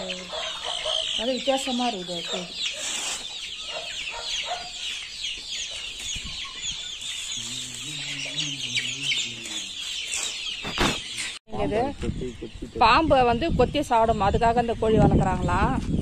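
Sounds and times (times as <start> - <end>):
chickens clucking and chirping: 0.0 - 16.0.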